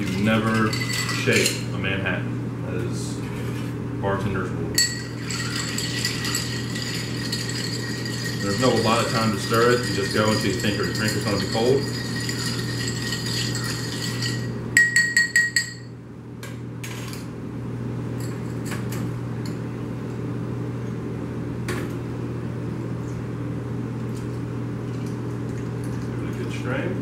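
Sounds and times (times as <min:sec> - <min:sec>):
spoon stirring ice in glass: 0:00.0 - 0:01.6, 0:04.8 - 0:15.8
steady low hum: 0:00.0 - 0:27.0.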